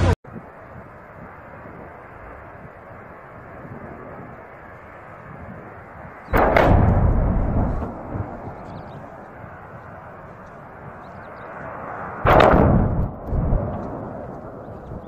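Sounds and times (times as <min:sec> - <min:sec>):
steady rushing noise: 0:00.0 - 0:15.0
distant explosion booms: 0:06.3 - 0:09.1, 0:12.2 - 0:15.0.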